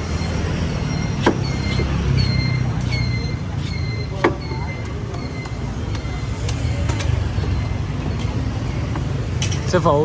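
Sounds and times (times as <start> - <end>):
street traffic rumble: 0.0 - 10.0
knife chopping coconut husk: 1.2 - 1.9.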